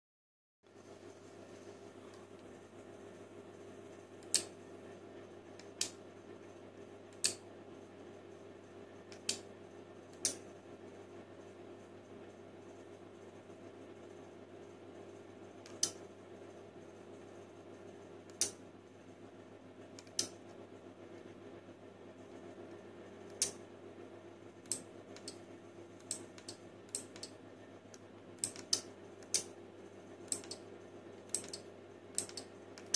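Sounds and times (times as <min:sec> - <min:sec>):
faint steady hum: 0:00.7 - 0:32.9
relays clicking: 0:31.3 - 0:31.6.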